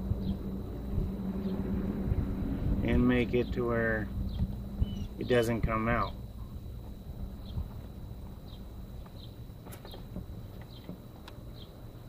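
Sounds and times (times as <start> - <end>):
thin high whine: 0.0 - 9.6
bird chirping: 0.0 - 12.0.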